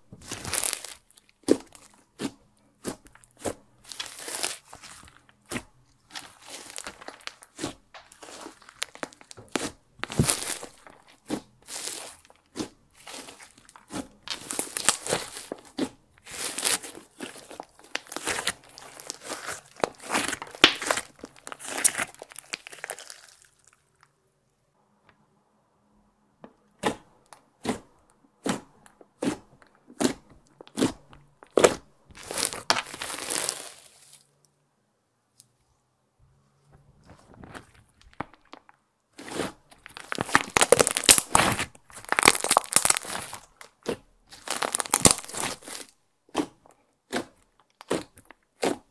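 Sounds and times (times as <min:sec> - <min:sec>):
slime kneaded with sticky clicks: 0:00.2 - 0:23.8, 0:39.2 - 0:48.9.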